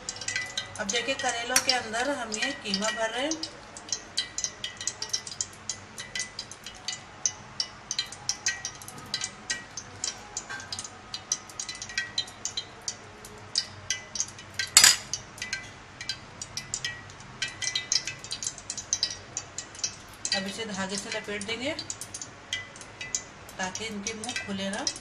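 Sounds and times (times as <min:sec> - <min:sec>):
metal spoon clicking and scraping: 0:13.6 - 0:15.7
spoon knocking against bowl: 0:14.8 - 0:15.1.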